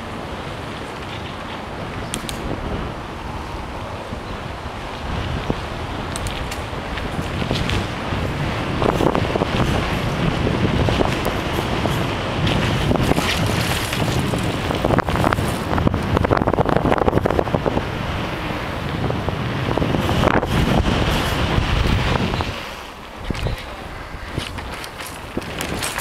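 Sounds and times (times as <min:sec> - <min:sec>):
wind buffeting microphone: 0:00.0 - 0:26.0
knocks and rattles: 0:24.3 - 0:26.0.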